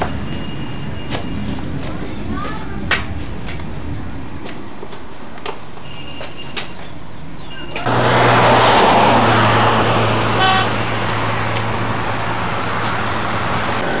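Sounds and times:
loud steady rushing noise: 7.8 - 14.0
short horn toot: 10.4 - 10.8.

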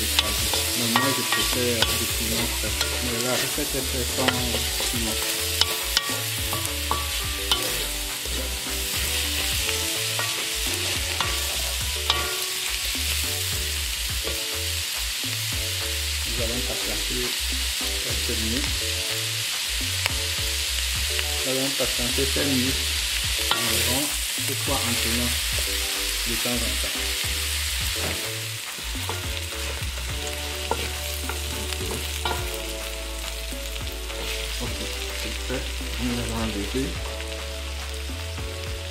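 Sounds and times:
wooden spatula stirring: 0.0 - 12.6
vegetables sizzling in oil: 0.0 - 38.9.

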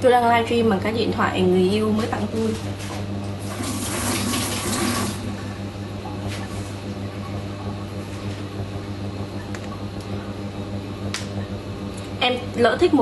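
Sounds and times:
steady low hum: 0.0 - 13.0
kitchen tap running: 3.4 - 6.4.

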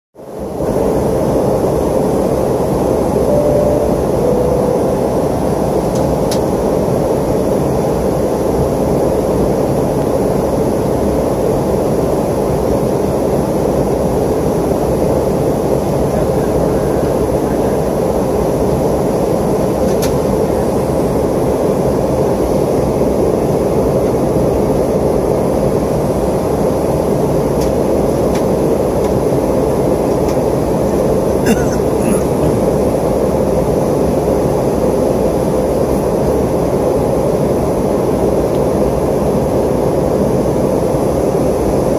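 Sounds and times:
jet airliner cabin engine noise: 0.2 - 41.9.

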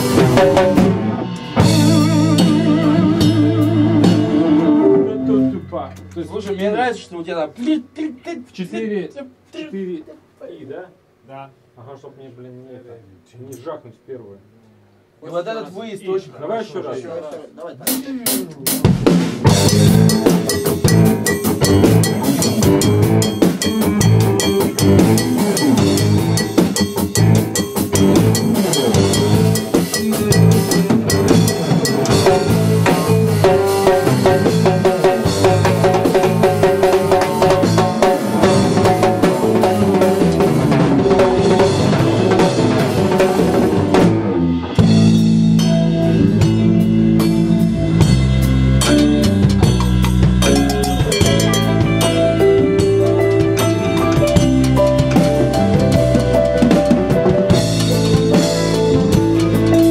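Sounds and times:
deep bass line: 0.0 - 6.1, 19.5 - 59.9
live rock band playing: 0.0 - 6.5, 17.9 - 59.9.

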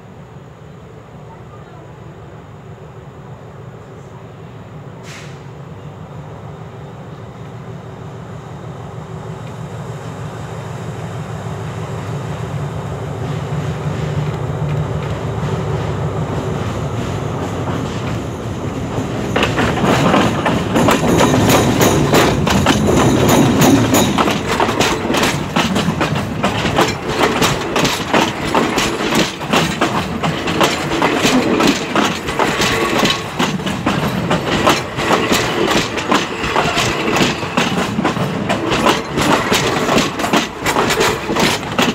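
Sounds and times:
locomotive engine drone: 2.0 - 41.9
train wheels clicking and rattling: 14.0 - 41.9.

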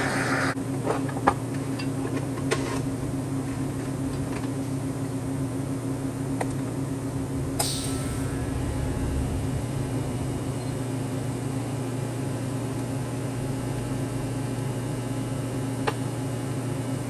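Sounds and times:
low machine hum: 0.5 - 17.0
short hiss: 7.6 - 10.8.

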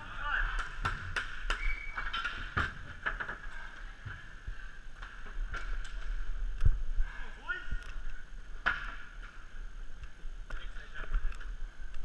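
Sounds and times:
hockey sticks and puck clacking: 0.3 - 3.6.

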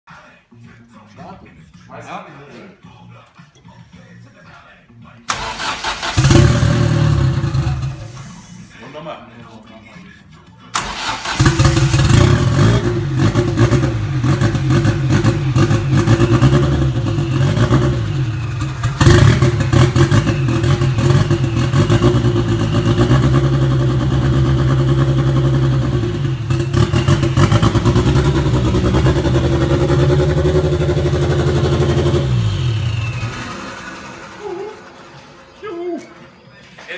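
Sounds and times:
car engine running: 11.4 - 35.5.

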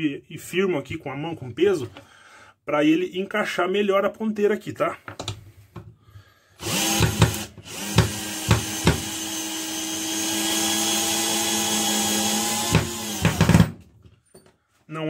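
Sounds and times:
cordless drill driving screw: 6.6 - 13.8
drill bit knocking in screw head: 6.6 - 13.8.

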